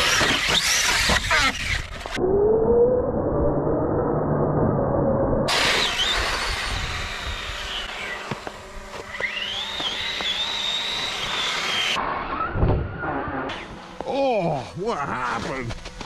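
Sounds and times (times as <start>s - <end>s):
electric motor whining: 0.0s - 2.9s, 5.5s - 14.2s
tyres on gravel: 5.5s - 12.4s, 13.0s - 16.0s.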